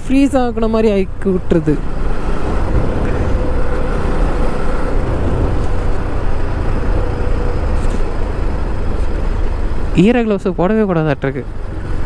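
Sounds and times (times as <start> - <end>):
motorcycle riding: 0.0 - 12.0
wind rush on microphone: 1.9 - 9.4.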